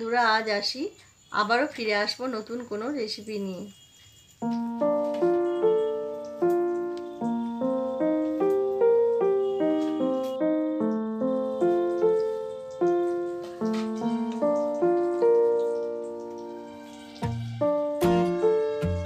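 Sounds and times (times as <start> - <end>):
keyboard melody: 4.4 - 19.0.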